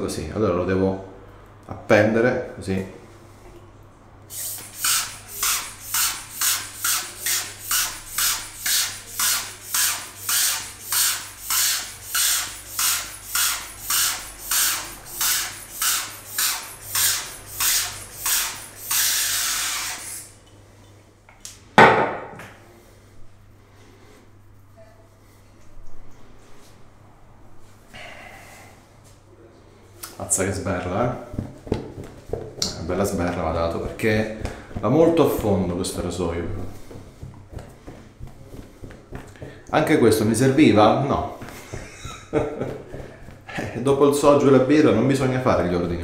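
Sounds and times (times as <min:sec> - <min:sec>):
pump sprayer squirting: 0:04.3 - 0:20.4.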